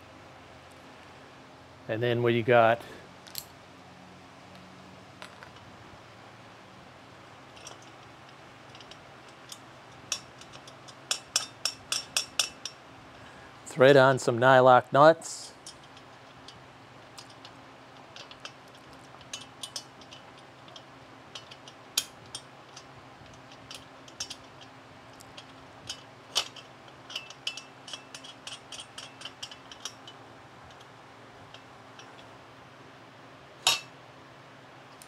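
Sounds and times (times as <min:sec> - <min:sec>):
metallic clicks of nuts on bolts: 0:07.6 - 0:12.8, 0:15.6 - 0:30.9, 0:31.5 - 0:32.3.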